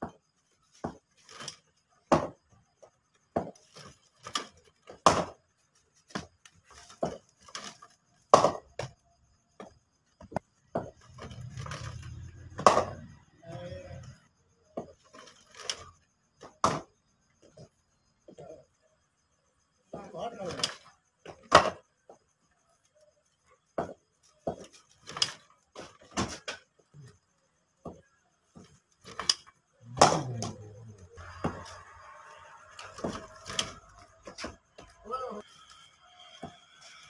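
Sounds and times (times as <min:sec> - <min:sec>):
cricket balls knocking and clacking: 0:00.0 - 0:37.0.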